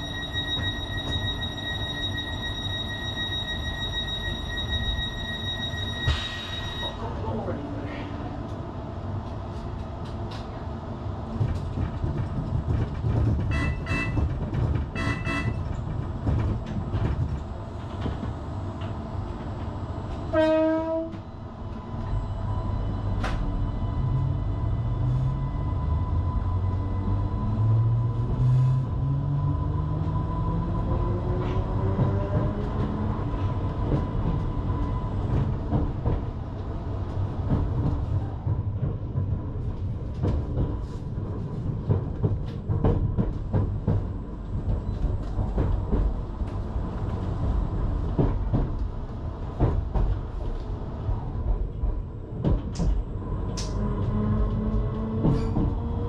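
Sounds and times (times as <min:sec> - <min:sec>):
rail rumble: 0:00.0 - 0:56.0
train horn blast: 0:13.5 - 0:14.2, 0:15.0 - 0:15.6, 0:20.3 - 0:21.2.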